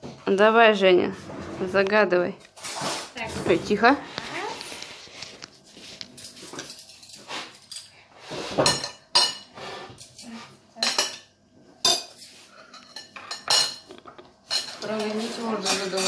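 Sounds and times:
dishes and cutlery clinking: 5.8s - 16.0s.

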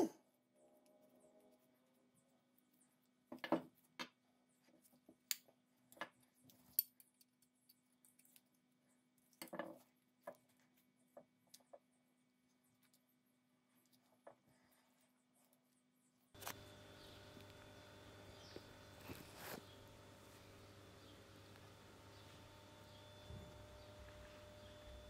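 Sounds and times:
small metal clicks: 5.1s - 10.7s
low steady hum: 16.4s - 25.0s.

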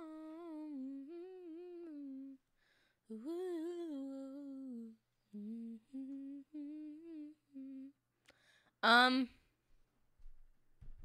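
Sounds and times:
young man humming a tune: 0.0s - 2.4s, 3.1s - 8.0s.

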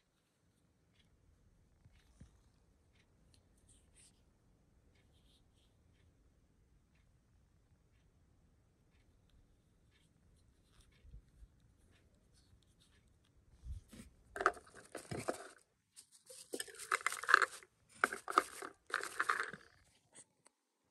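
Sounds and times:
paper packaging rustling: 13.9s - 19.7s.

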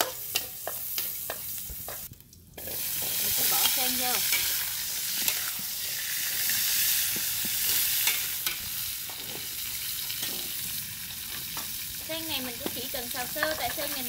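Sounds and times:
metal spatula scraping pan: 0.0s - 7.0s
vegetables sizzling in hot oil: 0.0s - 14.0s.

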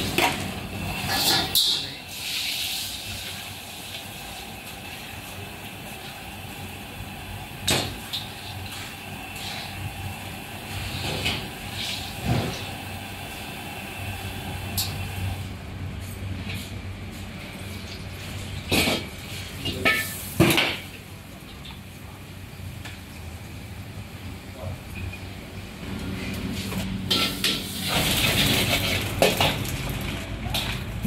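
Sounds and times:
ladle clanking and scraping wok: 0.0s - 3.4s, 18.7s - 21.0s, 26.2s - 30.8s
gas burner rushing: 0.0s - 15.6s, 25.8s - 30.3s
food frying in oil: 1.0s - 15.4s.

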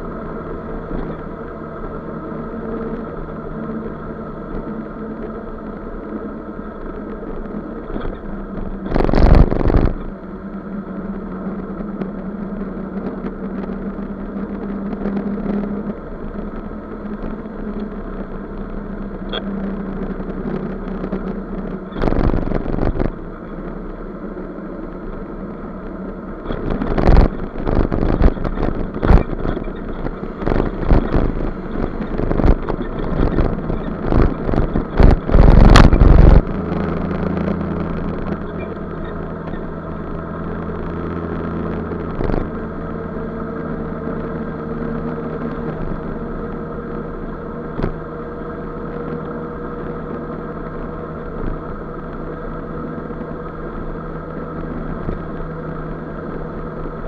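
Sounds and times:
scooter engine droning: 0.0s - 57.0s
loud burst of noise: 26.6s - 37.2s.

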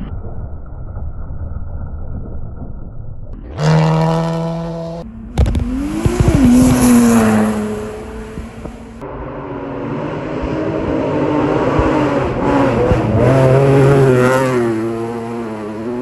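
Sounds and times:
rally car engine at high revs: 3.5s - 16.0s
rally car passing by: 3.6s - 16.0s.

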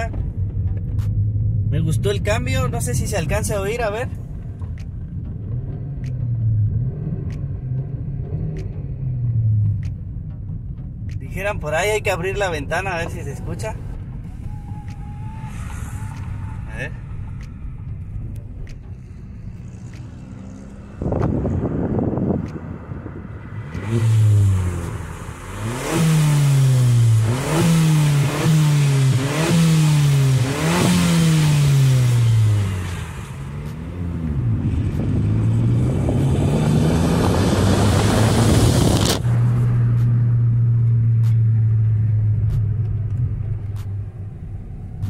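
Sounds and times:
loud car engine revving: 0.0s - 10.1s, 14.3s - 45.0s.

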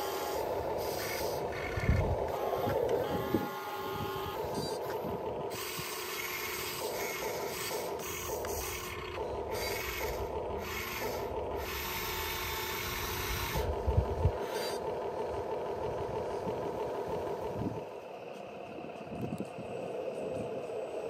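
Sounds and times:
electric motor whining: 0.0s - 14.8s
low rumble: 13.6s - 21.0s.

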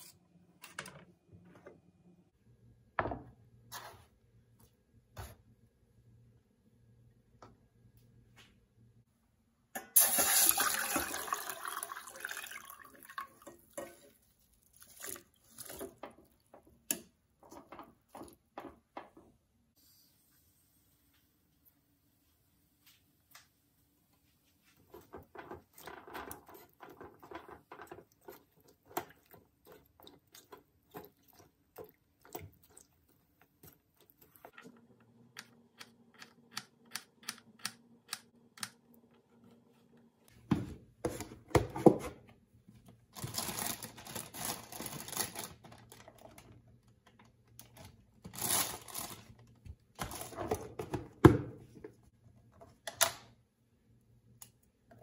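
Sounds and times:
plastic bag crinkling: 43.2s - 46.6s, 47.6s - 50.3s.

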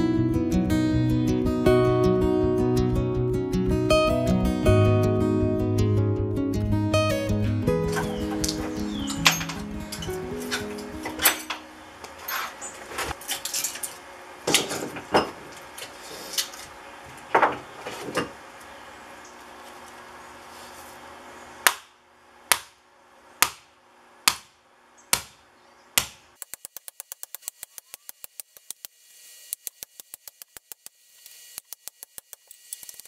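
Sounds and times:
hatchet striking steel: 21.6s - 22.8s, 23.4s - 25.4s
fast run of clicks: 26.4s - 33.0s.

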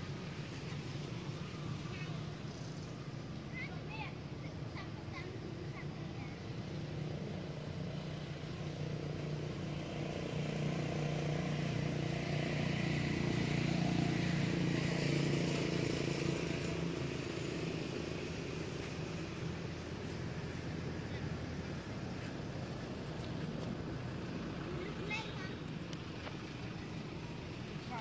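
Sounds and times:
vehicle engine passing by: 0.3s - 28.0s.

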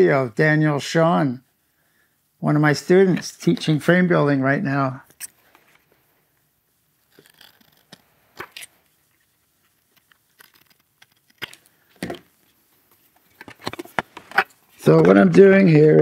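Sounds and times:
paper rustling: 7.0s - 15.3s.

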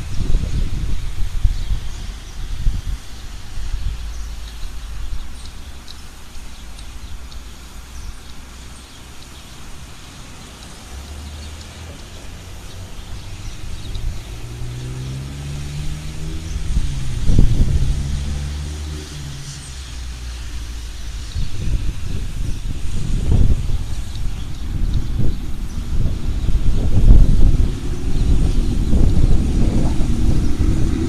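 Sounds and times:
traffic on wet road: 0.0s - 31.0s
vehicle engine accelerating: 10.1s - 31.0s.

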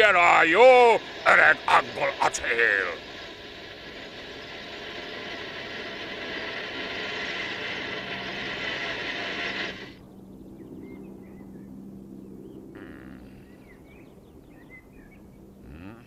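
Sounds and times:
birds chirping: 0.0s - 6.6s, 9.9s - 16.0s
model tank motor whirring: 0.0s - 10.0s.

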